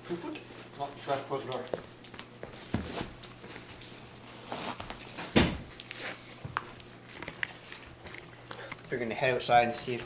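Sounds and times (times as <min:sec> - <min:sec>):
shoes shuffling on tiled floor: 0:00.1 - 0:05.3.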